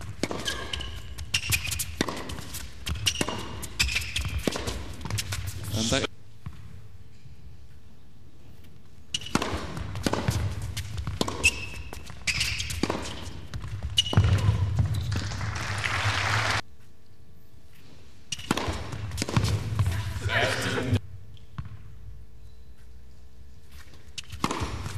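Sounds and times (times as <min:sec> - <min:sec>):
ball bouncing on court: 0:00.0 - 0:05.6, 0:09.1 - 0:15.5, 0:18.3 - 0:20.6, 0:21.4 - 0:21.9, 0:24.2 - 0:24.9
rackets striking tennis ball: 0:00.0 - 0:05.8, 0:09.1 - 0:15.4, 0:18.3 - 0:21.6, 0:24.0 - 0:24.9
shoes squeaking: 0:00.0 - 0:06.7, 0:08.6 - 0:15.4, 0:16.8 - 0:21.0, 0:22.4 - 0:24.9.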